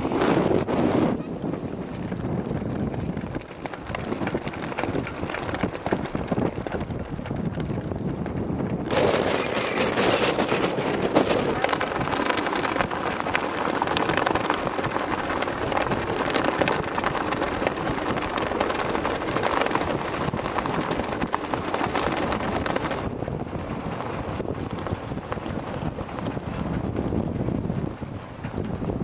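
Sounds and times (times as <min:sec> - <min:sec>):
boat noise: 0:00.0 - 0:29.0
wind buffeting microphone: 0:00.0 - 0:29.0
water rushing: 0:09.2 - 0:17.8.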